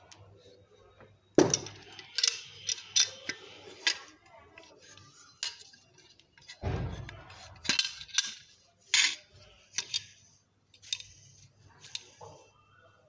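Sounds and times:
metal parts clicking and clinking: 1.4s - 12.2s
low thump: 6.6s - 7.3s.

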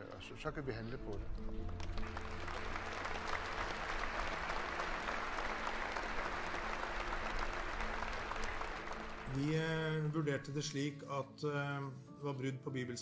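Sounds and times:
large crowd clapping: 1.1s - 10.3s.

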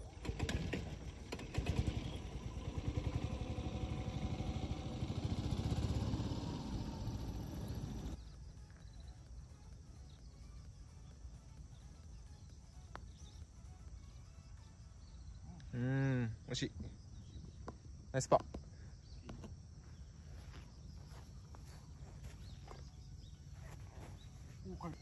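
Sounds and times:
golf cart engine chugging: 0.0s - 8.2s.

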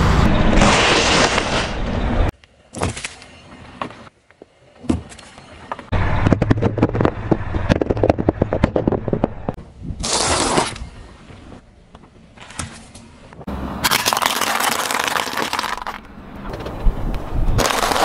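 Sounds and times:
tyre crushing objects: 6.0s - 10.8s, 17.6s - 18.0s.

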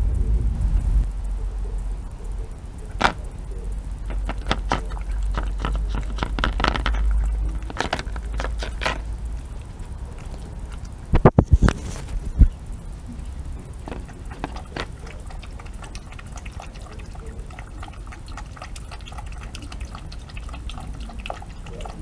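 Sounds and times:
low rumble: 0.0s - 16.0s
fox chewing from plastic tub: 2.9s - 3.4s, 4.0s - 12.2s, 13.5s - 22.0s
heavy thumps: 3.0s - 3.4s, 4.0s - 9.1s.

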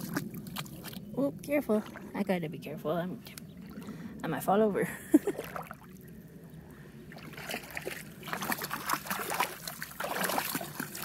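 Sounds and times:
wading splashes in water: 0.0s - 2.4s, 5.0s - 11.0s.

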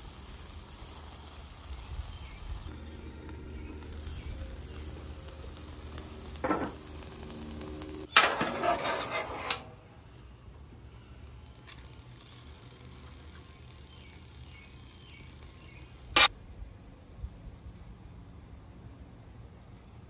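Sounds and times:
meat sizzling on griddle: 0.0s - 9.5s
metal spatulas scraping griddle: 6.4s - 9.8s
metal clatter: 8.1s - 9.8s.

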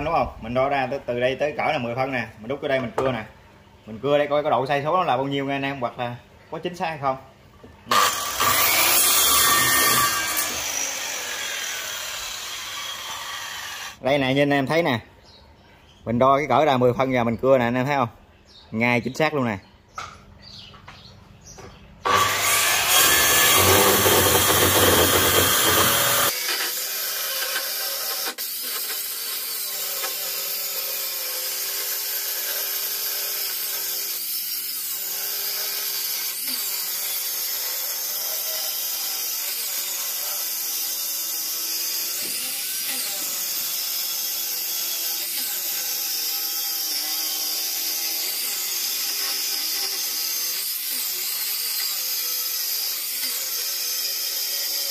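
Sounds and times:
circular saw cutting wood: 7.9s - 14.0s, 22.0s - 54.9s.

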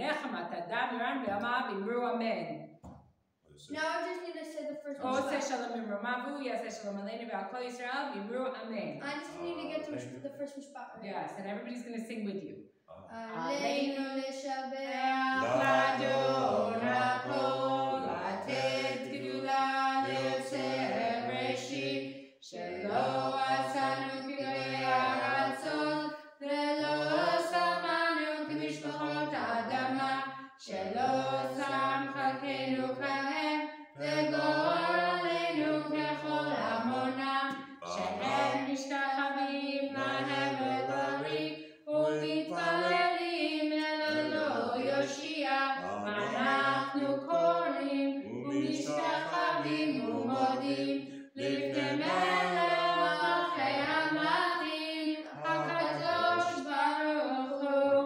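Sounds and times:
boy chanting prayers: 15.2s - 19.2s, 22.6s - 26.0s, 37.8s - 38.7s, 39.9s - 41.4s, 42.0s - 43.2s, 43.8s - 45.1s, 45.8s - 47.0s, 48.2s - 53.6s, 55.2s - 56.7s
lower voice singing along: 15.3s - 21.4s, 37.8s - 38.7s, 43.8s - 45.1s, 45.8s - 47.2s, 48.2s - 54.0s, 55.3s - 56.7s.

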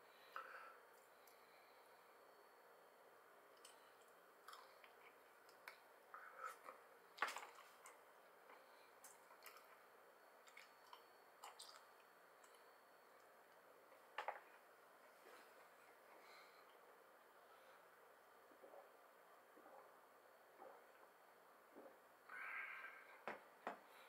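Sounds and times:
chewing clicks and squishy smacks: 10.4s - 12.6s.

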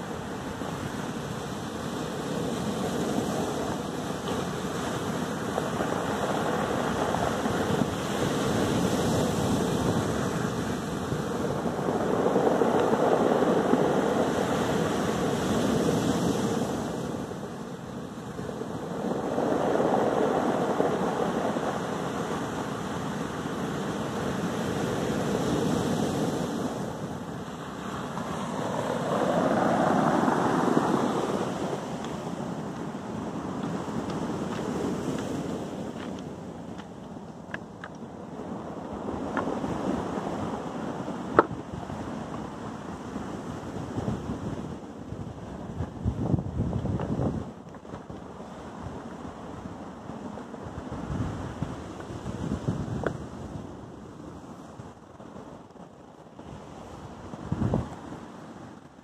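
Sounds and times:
surf breaking on stone beach: 0.0s - 54.9s.

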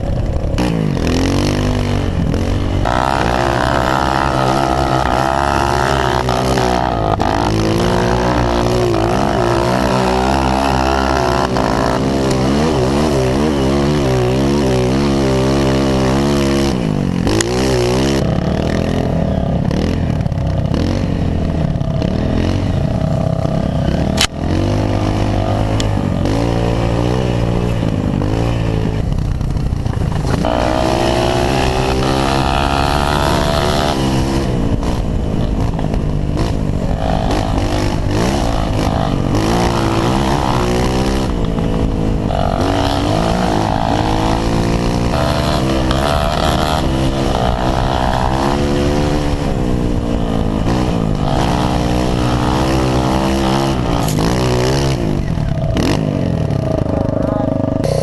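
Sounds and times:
motorcycle engine revving: 0.0s - 58.0s.

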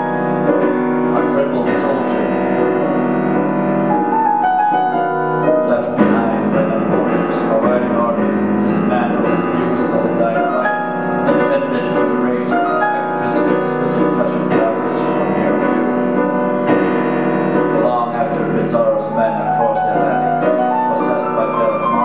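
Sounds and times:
solo grand piano playing: 0.0s - 22.0s.

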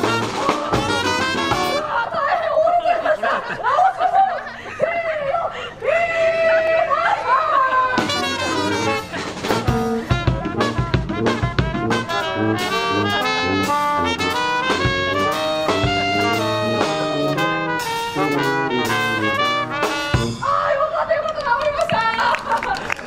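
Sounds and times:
brass band playing: 0.0s - 2.0s, 7.9s - 20.6s
sousaphone bass line: 8.1s - 20.4s.

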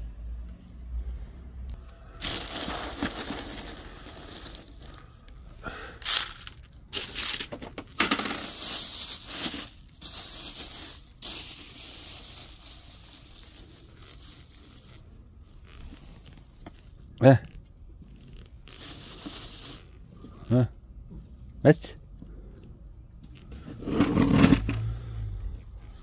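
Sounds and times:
plastic bags rustling: 1.8s - 17.2s, 18.0s - 20.4s.

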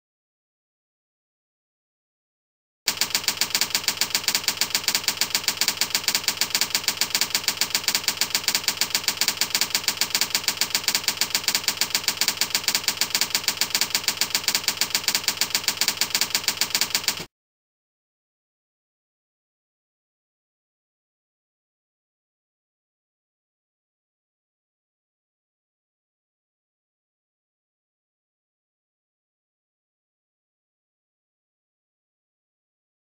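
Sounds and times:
typewriter clicks: 2.9s - 17.3s.

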